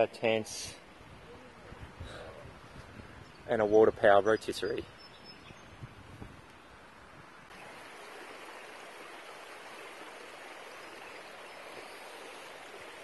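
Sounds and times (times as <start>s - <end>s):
creek water rushing over rocks: 7.5s - 13.0s.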